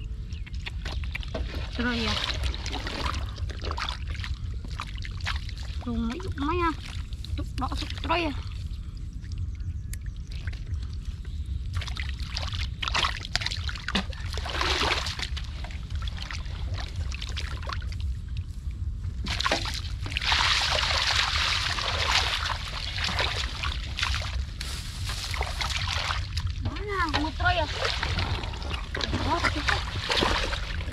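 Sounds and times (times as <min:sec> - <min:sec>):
hands splashing in muddy water: 0:19.3 - 0:26.4, 0:27.6 - 0:30.9.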